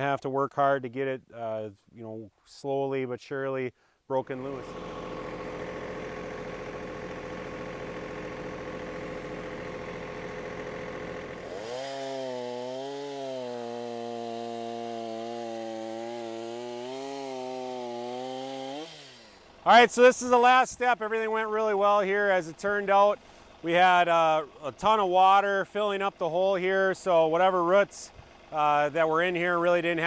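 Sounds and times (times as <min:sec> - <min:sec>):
engine idling: 0:04.3 - 0:11.8, 0:19.1 - 0:30.0
chainsaw cutting wood: 0:04.3 - 0:20.6.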